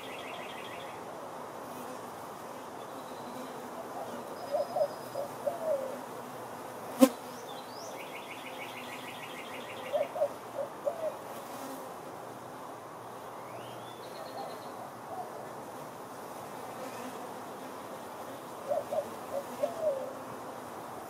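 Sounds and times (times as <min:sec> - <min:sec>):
honeybees buzzing: 0:15.4 - 0:21.0.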